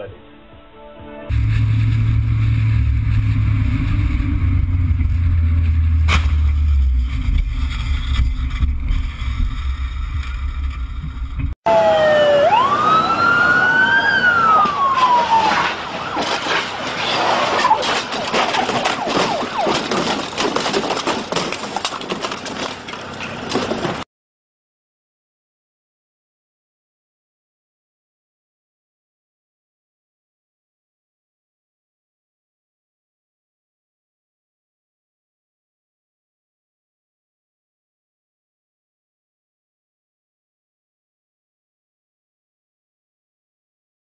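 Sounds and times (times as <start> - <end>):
rough clattering noise: 1.3 - 11.6, 14.6 - 24.0
low vehicle rumble: 1.3 - 24.0
emergency vehicle siren: 11.7 - 20.6.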